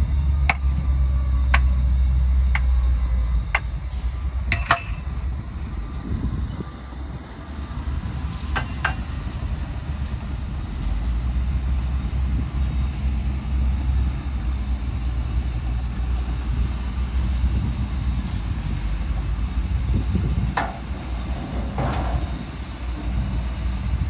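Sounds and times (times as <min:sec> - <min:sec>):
diesel truck engines rumbling: 0:00.0 - 0:24.0
sharp metallic clinks: 0:04.5 - 0:05.2, 0:08.5 - 0:09.6.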